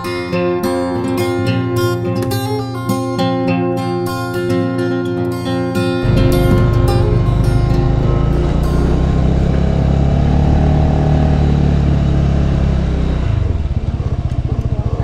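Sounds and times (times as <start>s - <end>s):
motorbike engine running: 6.0s - 15.0s.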